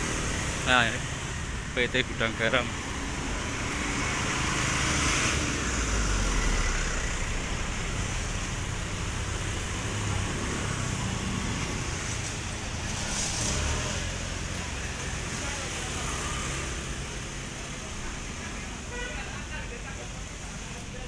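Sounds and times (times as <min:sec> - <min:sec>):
motorbikes and scooters passing: 0:02.2 - 0:18.9.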